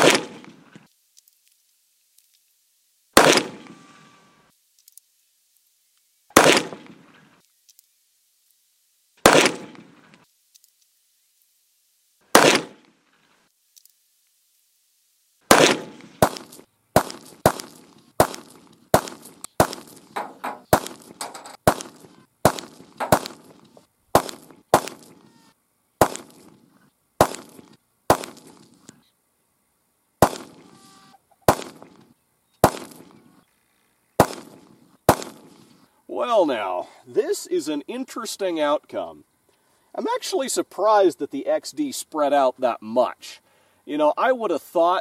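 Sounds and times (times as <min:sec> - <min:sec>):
pistol shots: 0:00.0 - 0:00.6, 0:03.2 - 0:03.8, 0:06.3 - 0:07.2, 0:09.2 - 0:10.1, 0:12.3 - 0:12.9, 0:15.5 - 0:25.2, 0:26.0 - 0:26.6, 0:27.2 - 0:28.7, 0:30.2 - 0:30.7, 0:31.4 - 0:32.0, 0:32.6 - 0:33.2, 0:34.2 - 0:35.6.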